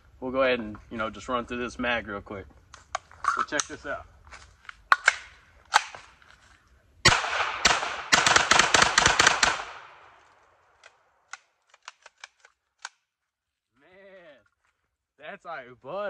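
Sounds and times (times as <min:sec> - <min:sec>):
pistol shots: 0:07.0 - 0:10.1.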